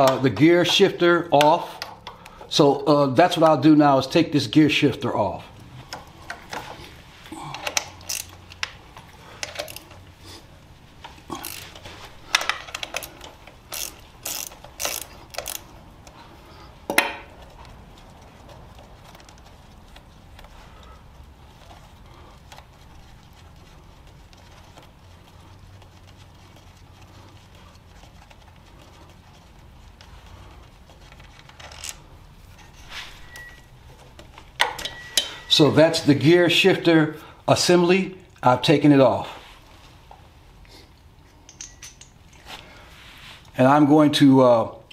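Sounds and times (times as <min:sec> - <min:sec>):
socket ratchet clicking: 0:07.6 - 0:08.8, 0:09.4 - 0:10.0, 0:11.4 - 0:15.8.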